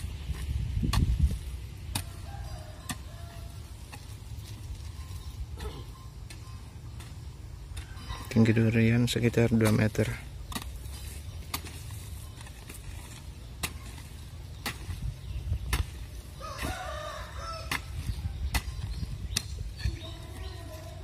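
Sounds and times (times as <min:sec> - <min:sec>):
hoe striking soil: 0:00.0 - 0:21.0
rooster crowing: 0:02.0 - 0:03.7, 0:16.4 - 0:17.9.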